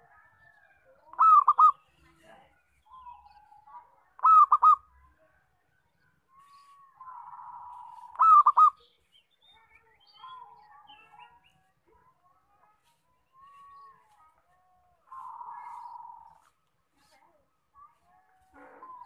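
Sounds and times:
dove cooing: 1.1 - 1.8, 4.2 - 4.9, 7.0 - 8.8, 15.1 - 16.4.

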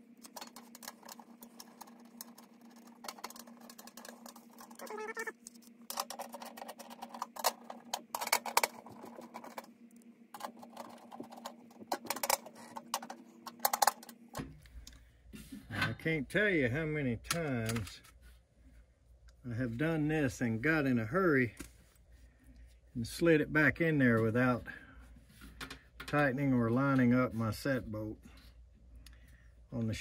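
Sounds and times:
steady low hum: 0.0 - 30.0
metal clicks taps and scrapes: 0.2 - 4.8.

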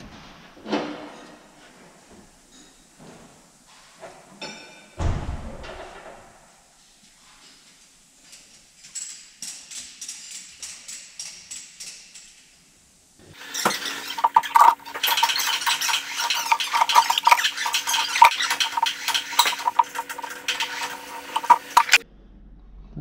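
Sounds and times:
metal tools clinking and clattering: 13.4 - 22.0.

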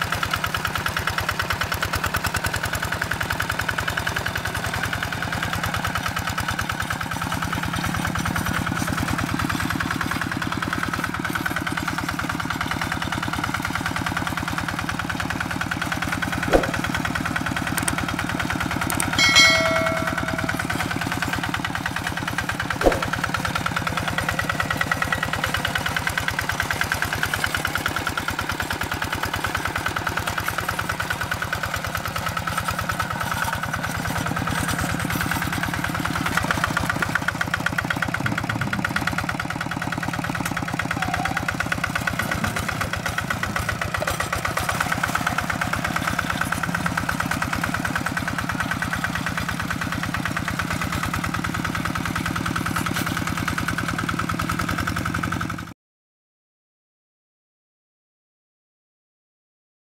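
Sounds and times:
hand tractor engine running: 0.0 - 55.7
short bell-like chime: 19.1 - 21.0.

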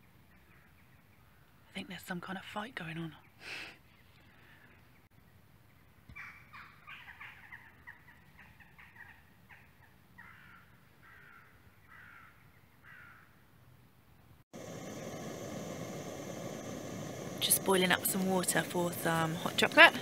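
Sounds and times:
loud steady hiss: 14.6 - 20.0.

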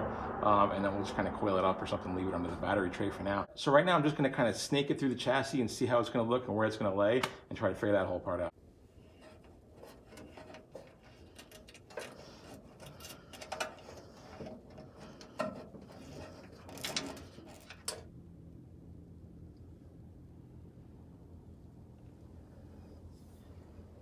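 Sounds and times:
faint low hum: 7.6 - 24.0
wires rustling and scraping: 8.7 - 18.1.

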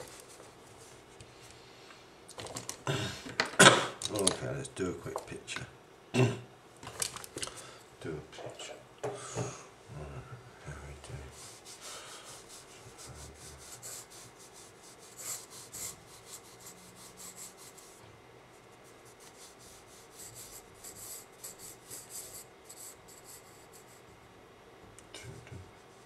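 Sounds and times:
pencil scratching on paper: 11.3 - 18.0, 18.8 - 24.1.

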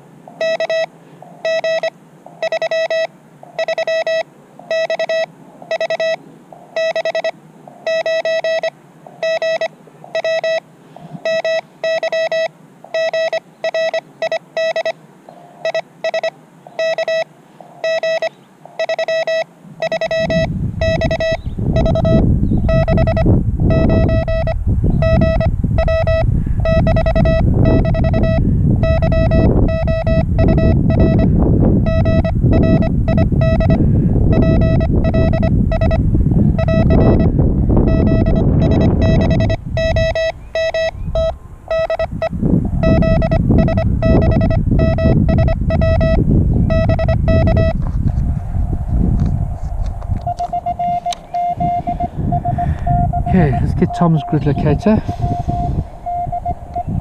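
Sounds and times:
morse code tone: 0.3 - 57.0
loud low rumble: 41.0 - 57.0.

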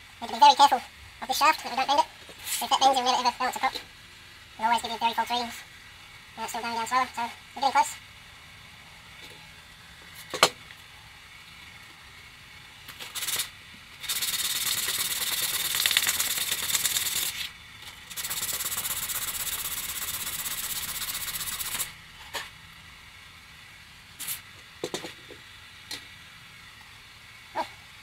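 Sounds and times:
propeller blade rasping on sandpaper: 13.0 - 22.0.

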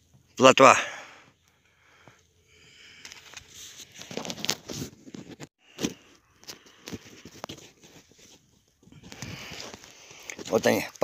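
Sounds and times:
scuffs and rustles of handling: 3.1 - 11.0.

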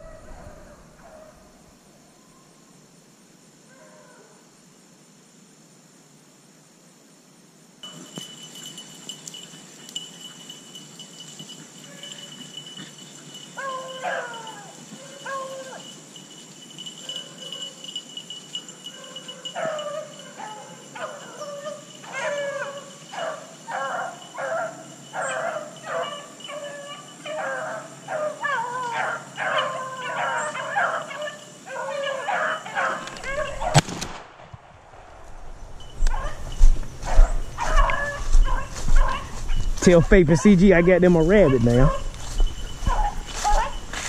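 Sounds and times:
dogs baying: 7.8 - 33.8, 35.8 - 44.0
shotgun shot: 33.7 - 35.6.

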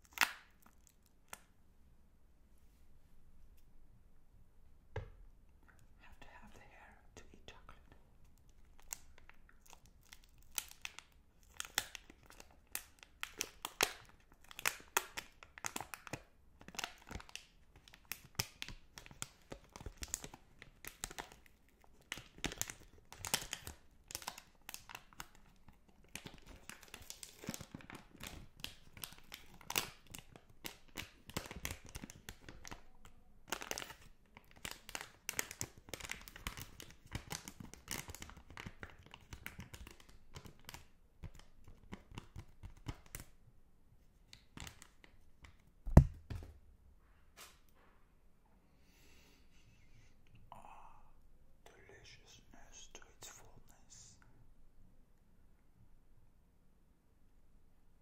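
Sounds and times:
wrapper crinkling: 8.6 - 43.2.

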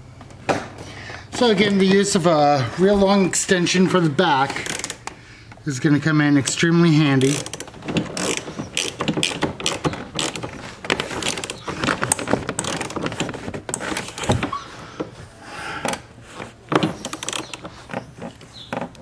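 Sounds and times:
socket ratchet clicking: 4.6 - 5.2, 7.2 - 13.0, 17.0 - 17.6.

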